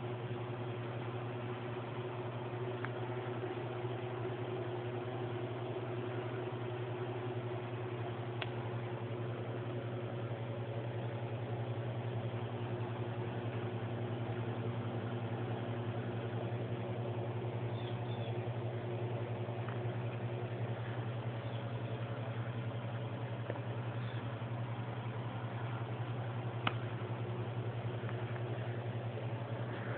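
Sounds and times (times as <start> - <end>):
low mechanical hum: 0.0 - 29.9
faint high chirps: 17.7 - 18.5.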